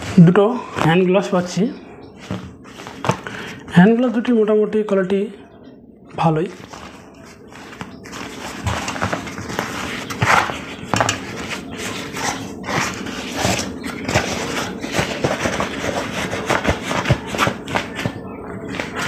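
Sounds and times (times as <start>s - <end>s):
plastic packaging crinkling: 6.5s - 19.0s.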